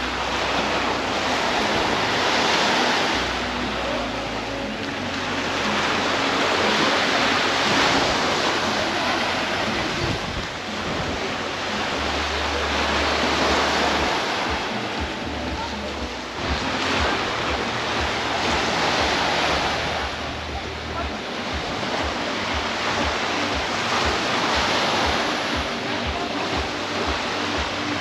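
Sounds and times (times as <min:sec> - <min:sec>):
small waves washing up shore: 0:00.0 - 0:28.0.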